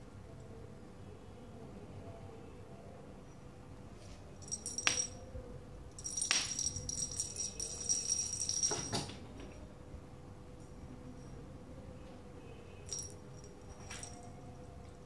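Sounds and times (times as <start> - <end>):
small bell jingling: 4.4 - 5.2, 6.0 - 9.2, 12.9 - 14.4.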